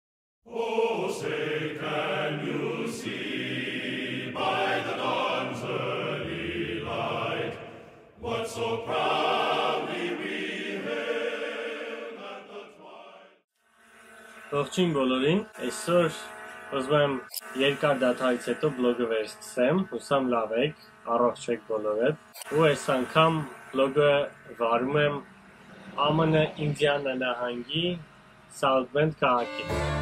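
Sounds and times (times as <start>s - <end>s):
choir singing: 0.5s - 13.4s, 14.3s - 25.3s, 29.3s - 30.0s.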